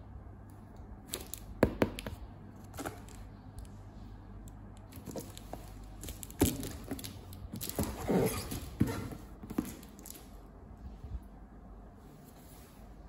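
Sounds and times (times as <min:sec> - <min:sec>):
cardboard scraping rustle: 0:06.5 - 0:10.2.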